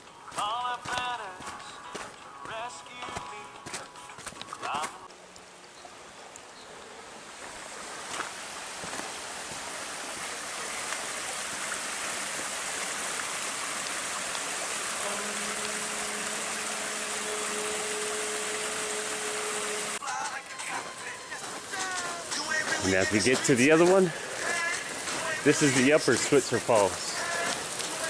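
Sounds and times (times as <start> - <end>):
faint steady hum: 0.0 - 20.0
waterfall rushing: 7.1 - 28.0.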